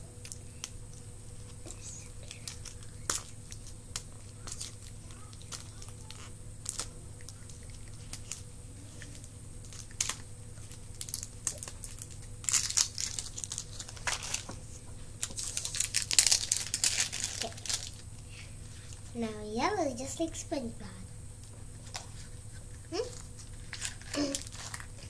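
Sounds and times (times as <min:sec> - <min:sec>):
plastic wrapping crinkling and tearing: 0:01.4 - 0:18.3, 0:23.0 - 0:25.0.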